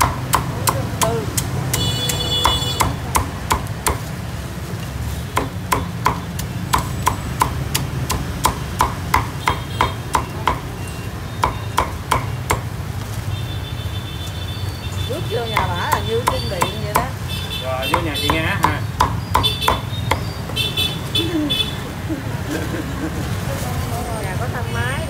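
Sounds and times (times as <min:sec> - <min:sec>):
cleaver chopping on wooden block: 0:00.0 - 0:04.1, 0:05.4 - 0:10.7, 0:11.4 - 0:12.7, 0:17.9 - 0:20.3.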